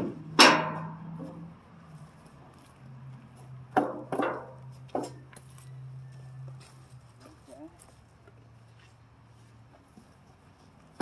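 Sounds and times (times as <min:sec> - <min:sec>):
sharp knocks and clanks: 0:00.0 - 0:01.5, 0:03.7 - 0:05.2.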